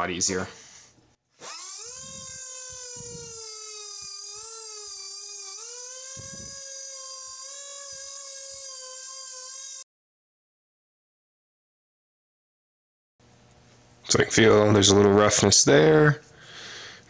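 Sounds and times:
air grinder whining: 1.4 - 9.8
burr grinding steel: 1.4 - 9.8.

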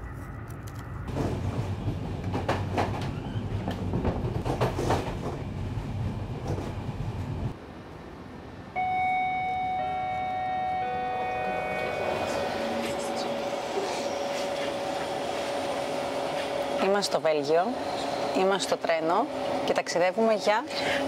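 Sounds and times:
passenger train rumbling and clattering: 0.3 - 7.6, 9.9 - 21.0
music with long held notes: 9.8 - 14.0.

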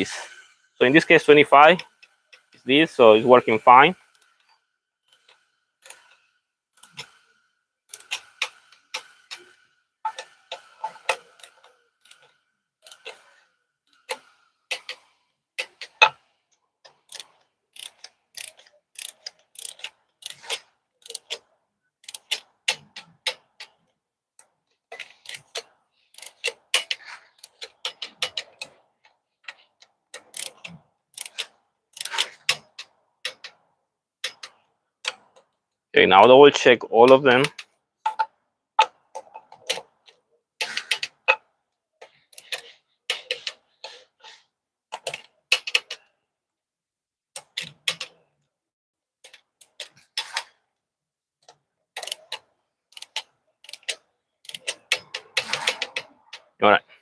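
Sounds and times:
torque wrench ratcheting clicks: 16.9 - 21.4, 22.0 - 23.7, 30.1 - 33.6, 52.0 - 56.0.

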